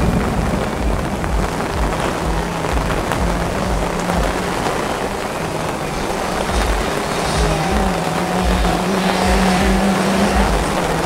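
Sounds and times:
moped engine running: 0.0 - 11.0
rain hissing: 0.0 - 11.0.

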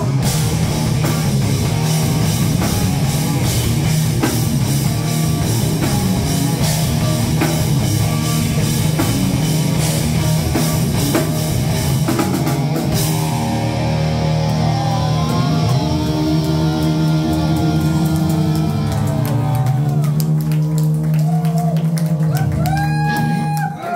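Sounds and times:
drum and cymbal hits: 0.0 - 14.1
sliding bending guitar notes: 0.0 - 21.1
heavy rock band playing: 0.0 - 23.9.

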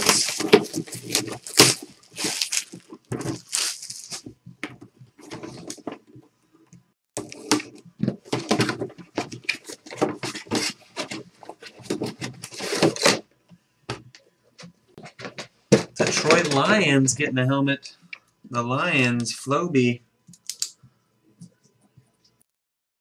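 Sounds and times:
cardboard box being opened: 0.0 - 4.2
plastic wrap crinkling and tearing: 0.0 - 4.3.

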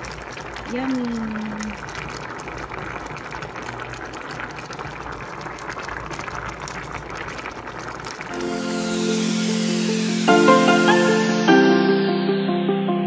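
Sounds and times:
soup boiling in a pot: 0.0 - 9.6.

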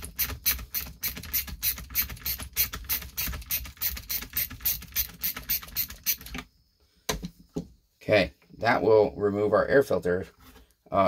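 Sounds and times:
ratcheting screwdriver clicking: 0.1 - 6.4.

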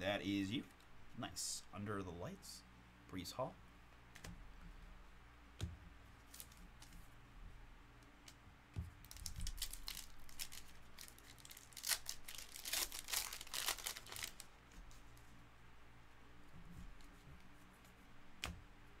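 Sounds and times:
foil pack tearing: 9.1 - 14.5
wrapper crinkling: 9.1 - 14.6.

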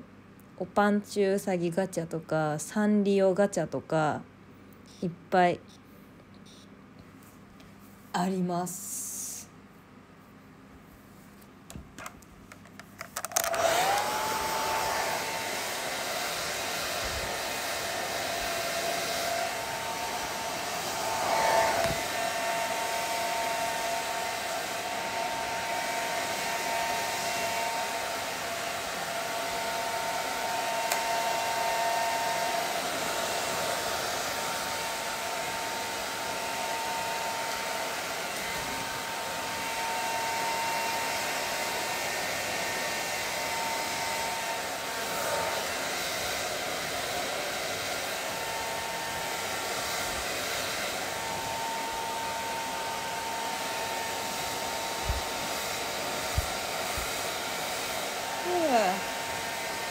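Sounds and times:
hair dryer blowing: 13.1 - 59.9.

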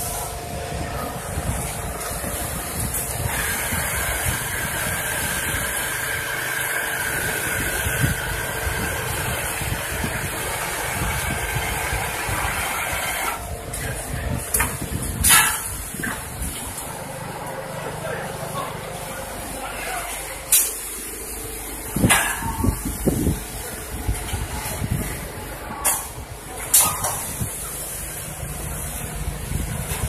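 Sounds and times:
quilting machine running: 0.0 - 14.2.

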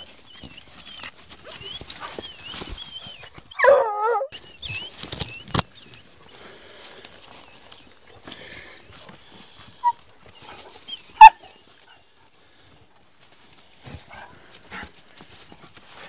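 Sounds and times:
hound barking: 3.6 - 4.3, 11.2 - 11.5.

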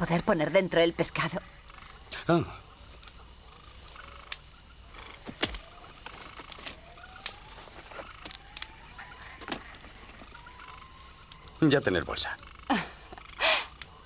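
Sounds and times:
insects chirring: 0.0 - 14.0
rustling: 4.9 - 10.8.

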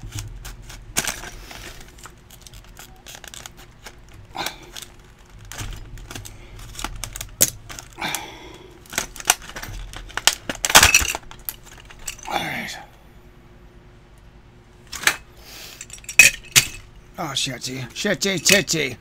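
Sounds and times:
plastic packaging crinkling: 0.0 - 8.1, 8.8 - 12.3.

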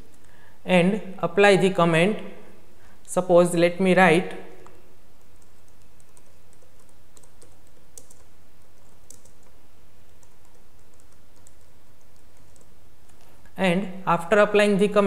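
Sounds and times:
steady low hum: 0.0 - 15.0
typing on computer keyboard: 5.2 - 13.2.

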